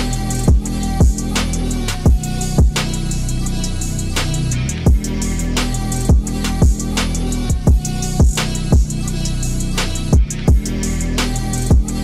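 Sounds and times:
bass notes: 0:00.0 - 0:12.0
drum kit beat: 0:00.0 - 0:12.0
heavy kick drum hit: 0:02.0 - 0:02.8, 0:04.9 - 0:05.2, 0:06.1 - 0:06.9, 0:07.5 - 0:08.9.

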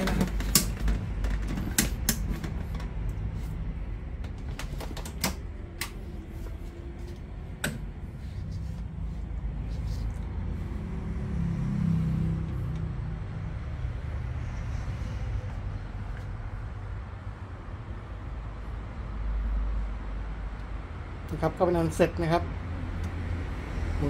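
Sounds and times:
fan motor humming: 0:00.0 - 0:18.4.

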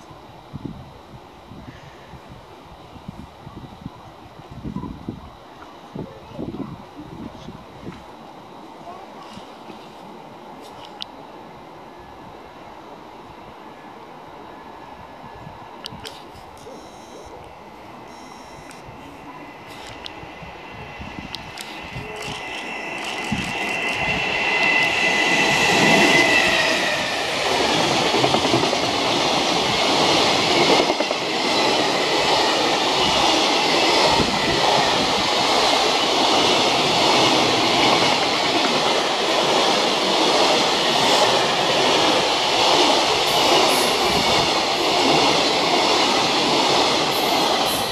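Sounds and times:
locomotive high whine: 0:06.4 - 0:47.9
train wheels rumbling on rail: 0:18.8 - 0:47.9.

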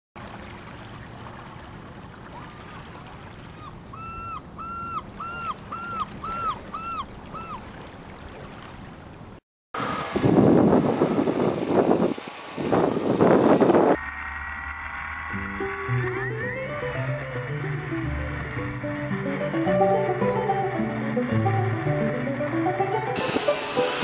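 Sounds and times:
bird calling short clear notes: 0:03.5 - 0:07.7.

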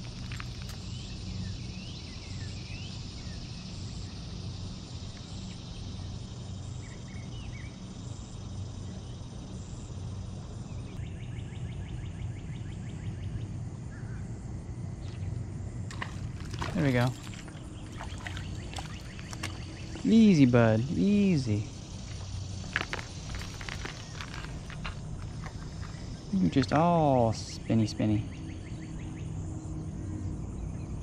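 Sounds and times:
steady low rumble: 0:12.3 - 0:31.0
bird chirps: 0:16.7 - 0:21.7.

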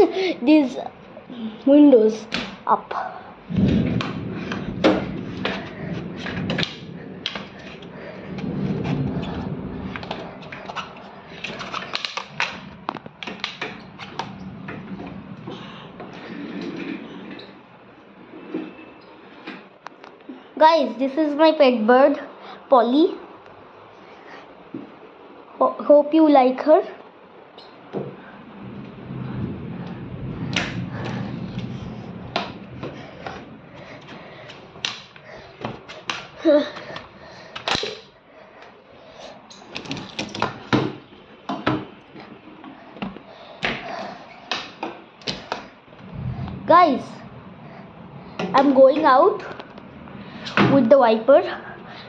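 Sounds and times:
sliding glass window: 0:03.4 - 0:19.8, 0:28.2 - 0:37.0.

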